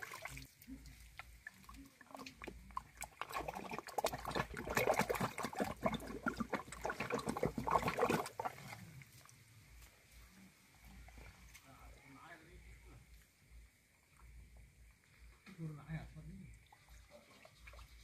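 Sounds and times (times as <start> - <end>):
muddy water sloshing: 0.0 - 9.5, 16.5 - 18.0
mud squelching: 0.0 - 9.9.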